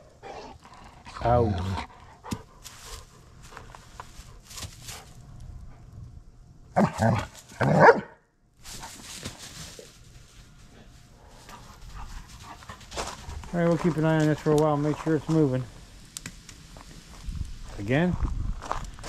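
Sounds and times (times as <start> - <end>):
dog barking: 6.8 - 8.2.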